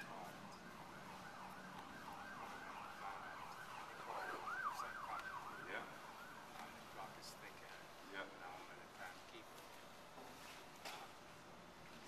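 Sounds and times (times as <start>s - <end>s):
emergency siren yelping: 0.0s - 7.7s.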